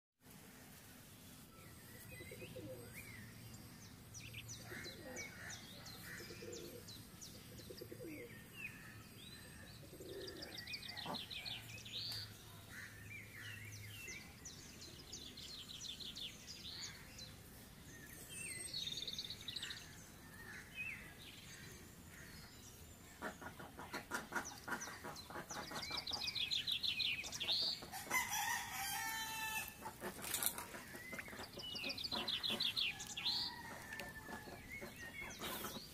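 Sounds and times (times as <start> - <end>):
birds chirping and trilling: 0.6 - 35.9.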